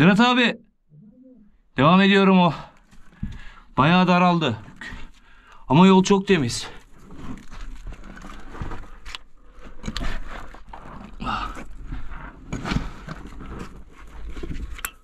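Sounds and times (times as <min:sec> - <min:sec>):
scraping and knocking on dirt: 0:06.9 - 0:15.0.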